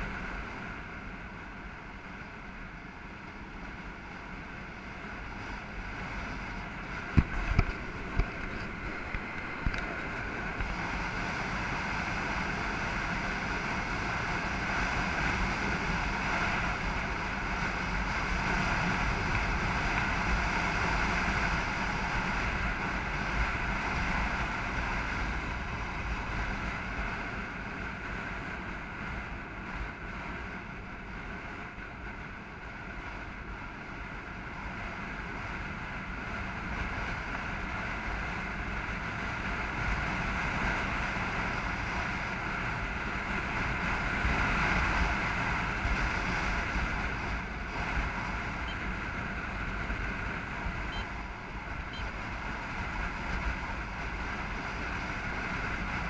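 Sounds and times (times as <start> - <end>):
road noise: 0.0 - 56.0
wind buffeting microphone: 5.0 - 33.0.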